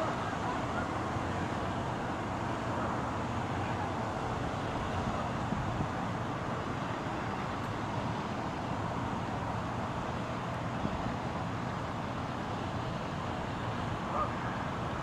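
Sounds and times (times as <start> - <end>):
urban traffic rumble: 0.0 - 15.0.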